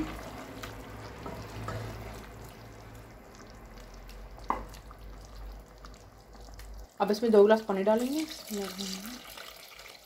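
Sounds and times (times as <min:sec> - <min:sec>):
spatula stirring thick curry: 0:00.0 - 0:06.6.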